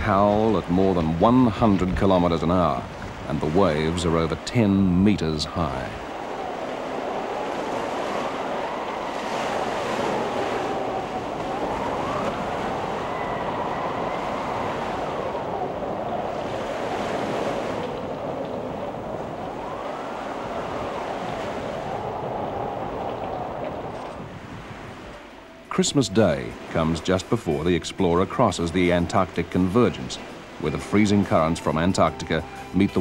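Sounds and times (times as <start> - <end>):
rough sea breaking: 0.0 - 33.0
wind howling: 0.0 - 33.0
thin wavering whistle: 6.2 - 16.3.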